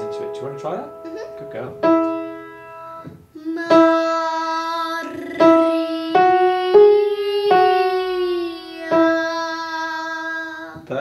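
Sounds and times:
piano chords: 0.0 - 11.0
girl singing a long note: 2.3 - 10.9.

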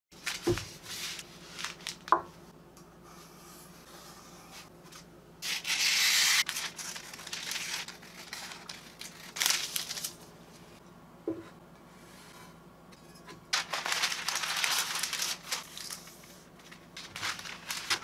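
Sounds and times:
paper rustling: 0.2 - 2.2, 4.9 - 10.2, 13.5 - 18.0.

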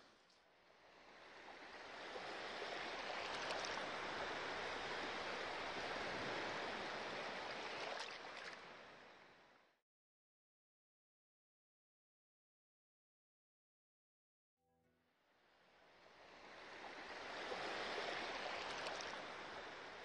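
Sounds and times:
sea waves washing on shore: 0.9 - 9.4, 16.1 - 20.0.

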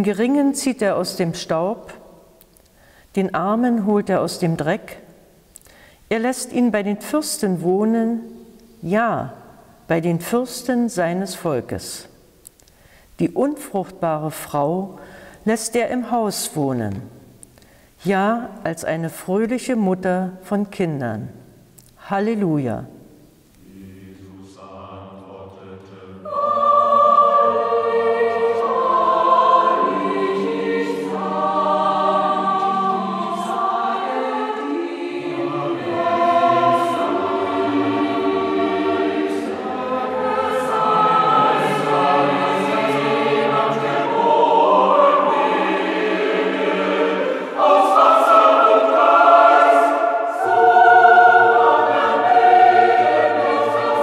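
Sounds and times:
choir singing sustained chords: 0.0 - 2.4, 22.9 - 54.0.

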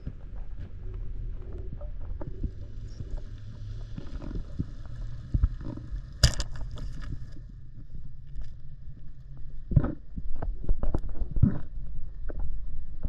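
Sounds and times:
underwater rumble: 0.0 - 13.0
speargun firing crack: 6.2 - 6.7.

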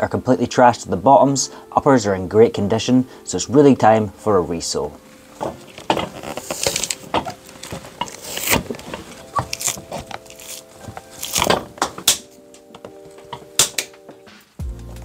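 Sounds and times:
faint background music: 0.0 - 15.0
pincers pulling nails: 5.4 - 13.9.

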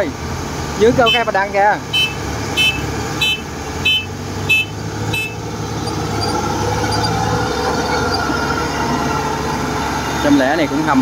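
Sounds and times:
diesel engine running: 0.0 - 11.0
warning beeper beeps: 2.0 - 5.4.

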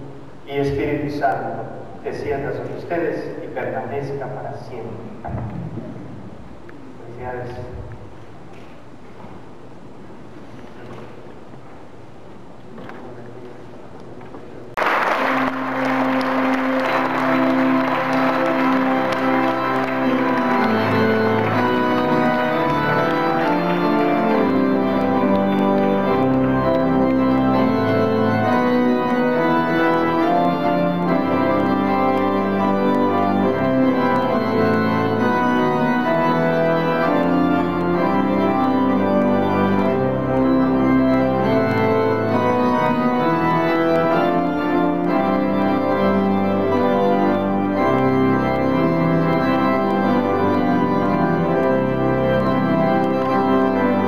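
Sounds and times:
church organ chords: 14.8 - 54.0.

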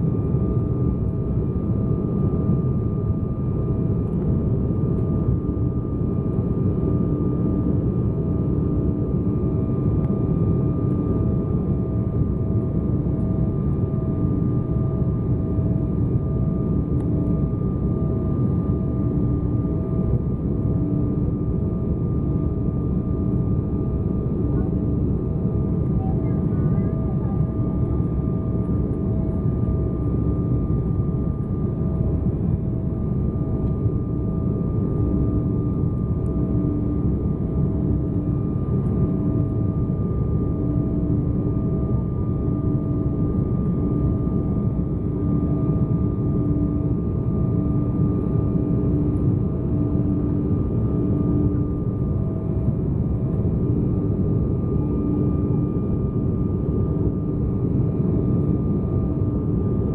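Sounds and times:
airliner cabin rumble: 24.0 - 30.8.

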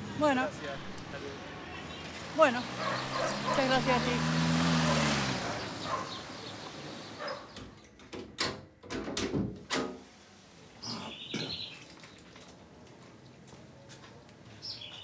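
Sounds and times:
sharp knocks and clatters: 7.5 - 10.0.

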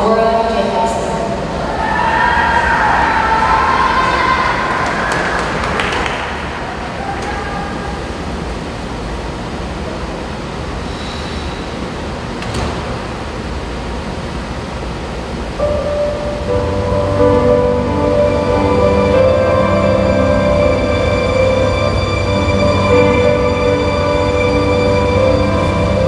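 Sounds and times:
ice rink room noise: 0.0 - 26.0
applause and cheers: 1.8 - 7.6.

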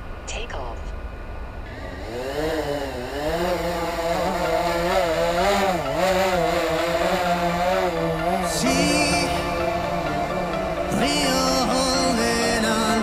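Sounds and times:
drone motors buzzing whine: 1.0 - 13.0.

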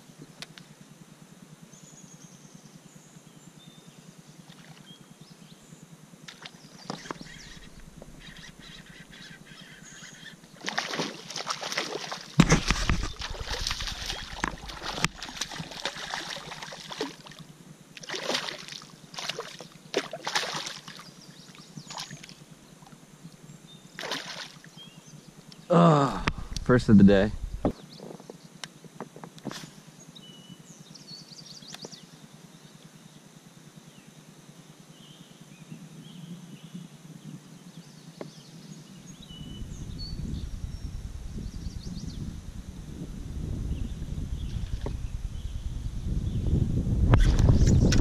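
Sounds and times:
fish striking lure with splash: 10.6 - 17.2
fish thrashing splashes: 10.6 - 17.4, 18.0 - 21.0, 24.0 - 24.6.

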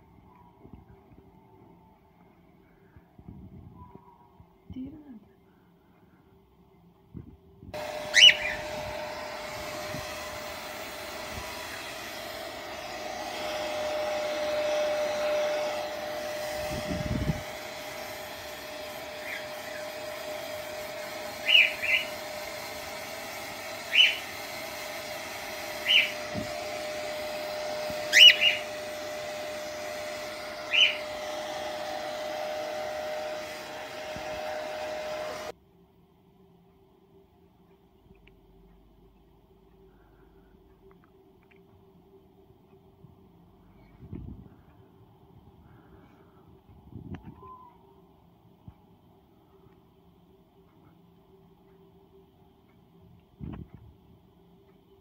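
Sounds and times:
hair dryer blowing: 7.7 - 35.6
bird chirping: 8.0 - 8.8, 21.4 - 22.2, 23.9 - 24.2, 28.1 - 28.7, 30.7 - 31.1.

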